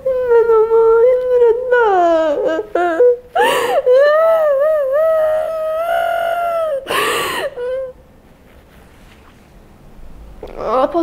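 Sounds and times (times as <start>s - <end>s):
woman whimpering: 0.0s - 8.0s
woman wailing: 0.1s - 7.9s
noisy breath: 3.4s - 3.9s, 6.9s - 7.8s.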